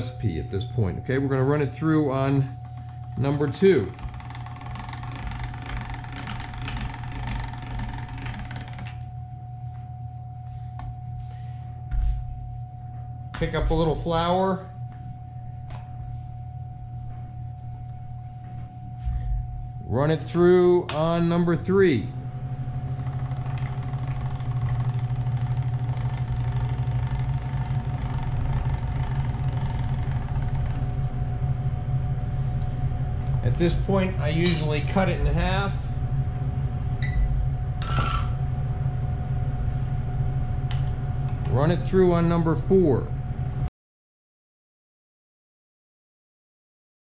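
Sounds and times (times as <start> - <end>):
steady hum: 0.0 - 43.7
pasta machine gearing rattling: 2.7 - 9.0, 22.9 - 31.0.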